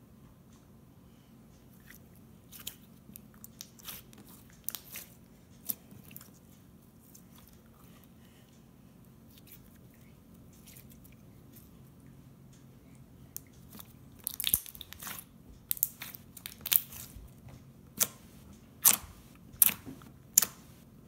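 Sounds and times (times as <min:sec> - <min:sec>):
slime being stretched and pressed: 0:03.5 - 0:06.2, 0:13.7 - 0:17.2, 0:18.8 - 0:20.6.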